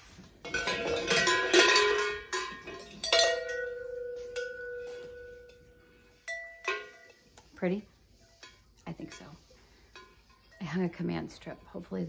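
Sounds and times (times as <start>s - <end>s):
metal bells clanking: 0.4s - 7.3s.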